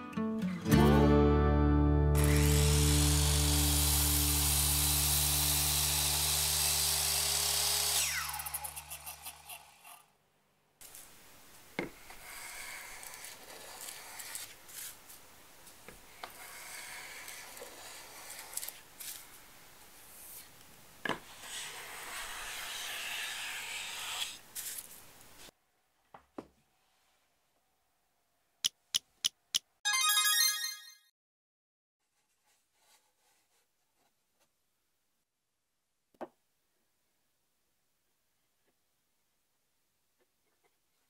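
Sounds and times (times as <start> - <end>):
circular saw spinning down: 2.2 - 8.9.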